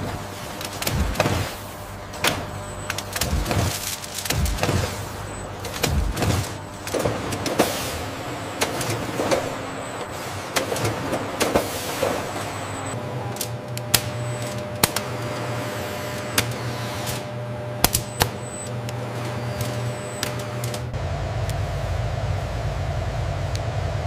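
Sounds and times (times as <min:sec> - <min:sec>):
machinery hum and whir: 0:00.0 - 0:24.0
sharp mechanical clicks: 0:00.6 - 0:07.5.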